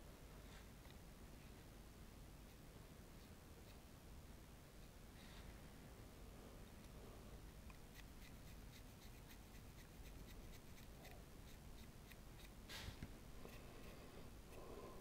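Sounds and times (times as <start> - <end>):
paintbrush scratchy ticks: 7.7 - 12.6
short hiss: 12.7 - 13.0.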